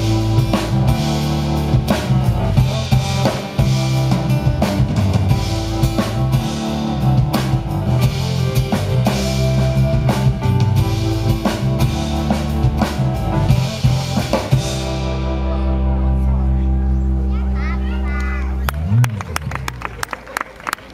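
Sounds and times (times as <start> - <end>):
drum kit beat: 0.0 - 16.0
electric bass: 0.0 - 20.4
keyboard: 0.0 - 20.9.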